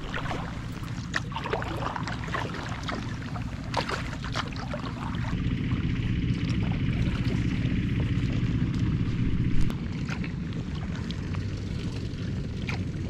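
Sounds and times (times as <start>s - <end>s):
paddle splashing in water: 0.0s - 13.0s
wind on microphone: 8.8s - 9.7s.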